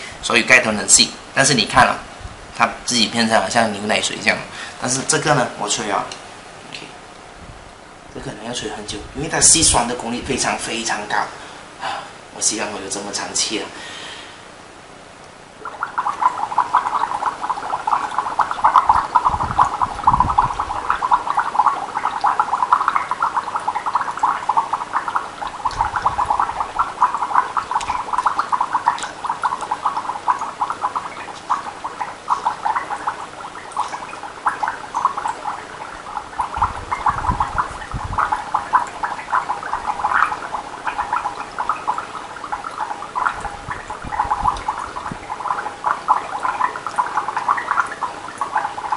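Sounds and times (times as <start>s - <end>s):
water bubbling through a straw: 15.5s - 48.9s.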